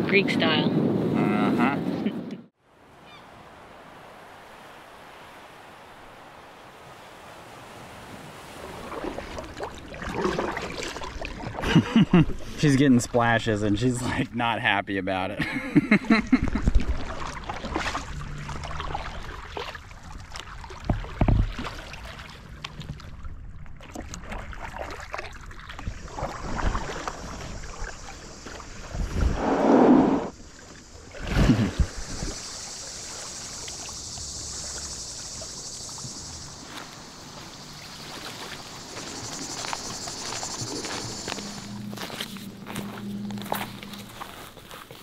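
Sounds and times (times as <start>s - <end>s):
paddles splashing: 3.1s - 14.5s, 15.5s - 29.3s, 30.3s - 45.0s
steady high hiss: 27.6s - 44.2s.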